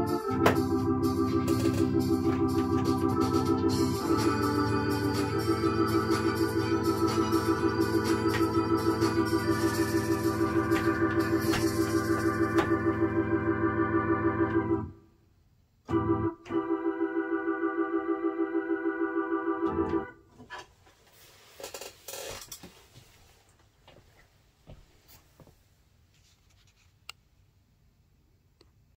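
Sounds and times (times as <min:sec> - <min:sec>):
organ chord: 0:00.0 - 0:15.1, 0:15.9 - 0:20.2.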